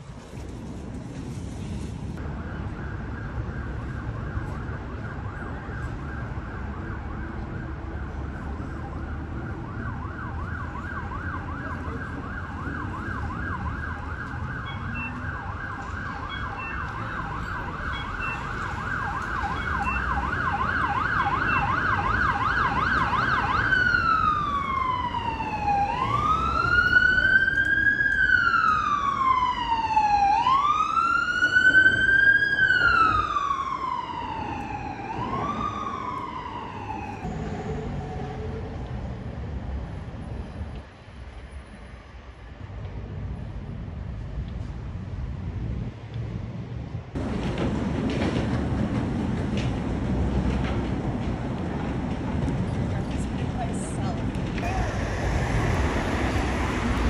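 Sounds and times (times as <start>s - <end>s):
street traffic rumble: 0.0s - 57.0s
emergency vehicle siren: 2.2s - 40.5s, 54.5s - 57.0s.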